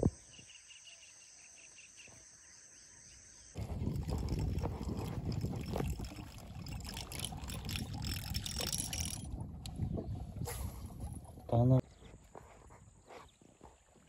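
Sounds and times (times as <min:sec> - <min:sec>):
fishing tackle clicking and rattling: 0:03.6 - 0:09.8.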